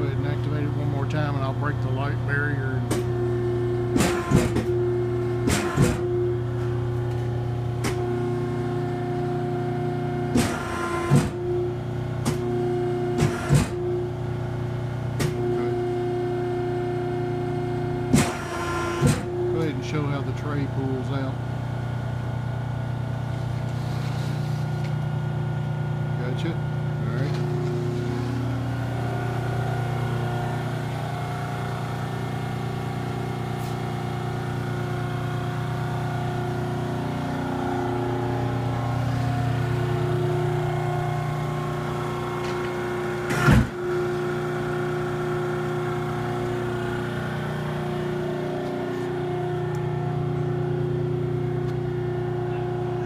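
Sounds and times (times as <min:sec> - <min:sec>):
hydraulic pump motor humming: 0:00.0 - 0:53.0
loud sharp thump: 0:43.3 - 0:43.8.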